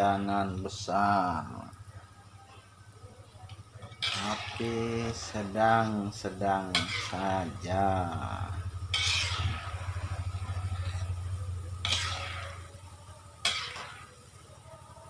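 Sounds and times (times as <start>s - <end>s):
dough frying in oil: 0.0s - 15.0s
low pulsing hum: 0.0s - 15.0s
metal spatula scraping a wok: 3.8s - 14.4s.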